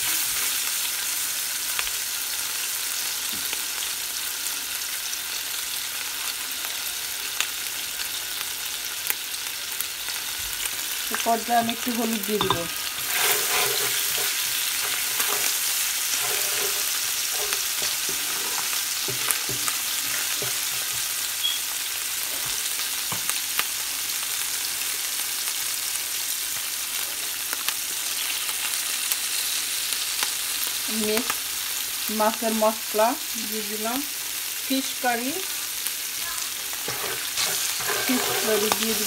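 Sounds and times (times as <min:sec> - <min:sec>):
onions sizzling in hot oil: 0:00.0 - 0:39.0
wooden spatula scraping pot: 0:11.7 - 0:21.1, 0:36.7 - 0:39.0.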